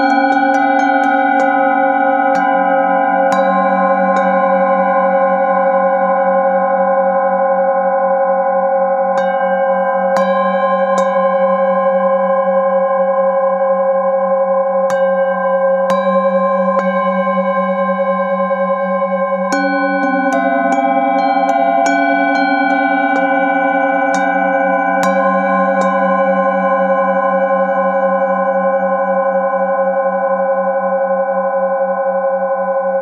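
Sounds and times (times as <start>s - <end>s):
mallet rubbing bowl rim: 0.0s - 5.5s, 9.2s - 12.2s, 14.8s - 28.0s
singing bowls ringing: 0.0s - 33.0s.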